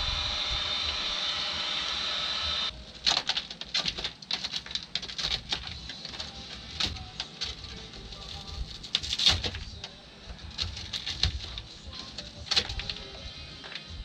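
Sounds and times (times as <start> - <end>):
heat gun blower: 0.0 - 2.7
crackling and scraping clicks: 2.7 - 14.0.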